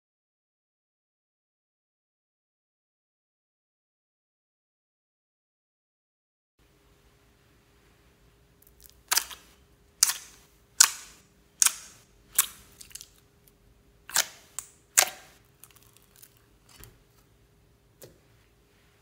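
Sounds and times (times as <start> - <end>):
slime squeezed by fingers: 8.6 - 13.2.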